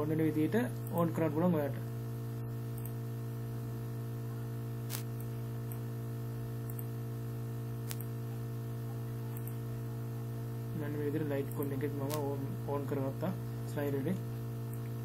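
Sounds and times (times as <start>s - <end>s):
low electrical mains hum: 0.0s - 15.0s
mouse clicks: 7.9s - 8.1s, 9.3s - 9.6s.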